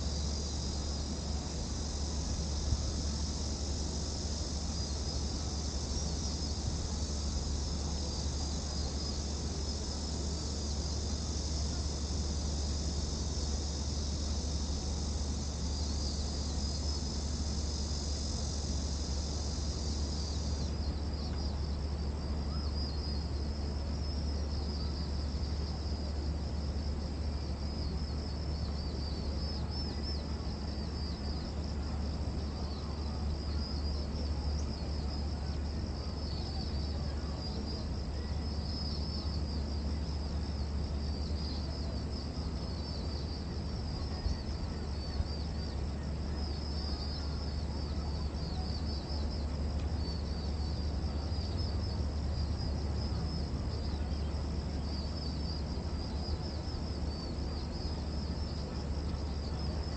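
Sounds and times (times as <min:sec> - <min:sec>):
cicadas buzzing: 0:00.0 - 0:59.9.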